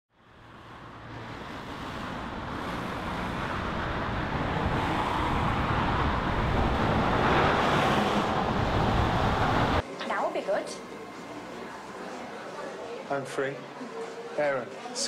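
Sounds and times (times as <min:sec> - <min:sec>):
cars driving past: 0:00.1 - 0:09.8.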